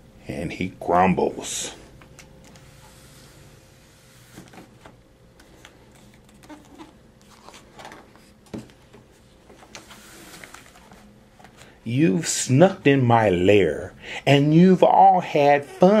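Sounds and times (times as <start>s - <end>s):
faint steady hum: 0.0s - 16.0s
paper pages rustling and turning: 4.1s - 11.8s.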